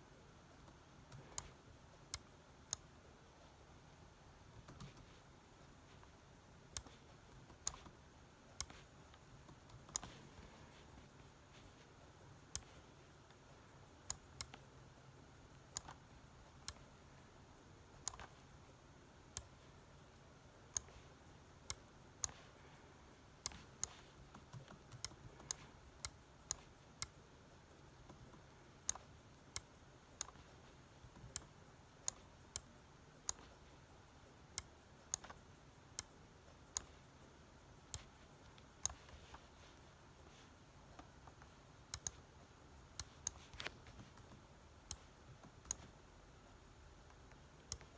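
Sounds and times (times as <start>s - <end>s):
faint room hum: 0.0s - 47.9s
mouse and keyboard clicks: 0.6s - 2.9s, 4.5s - 5.2s, 5.9s - 14.7s, 15.5s - 17.0s, 17.9s - 18.5s, 20.6s - 22.6s, 23.4s - 27.2s, 27.8s - 33.8s, 34.5s - 37.1s, 37.8s - 42.3s, 42.9s - 46.0s, 47.0s - 47.9s.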